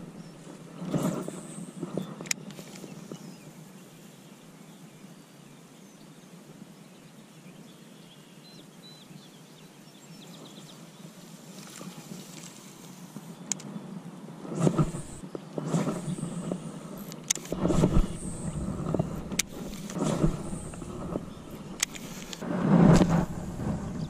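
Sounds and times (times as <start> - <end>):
wind on microphone: 13.7 - 24.0
sharp click: 17.0 - 23.2.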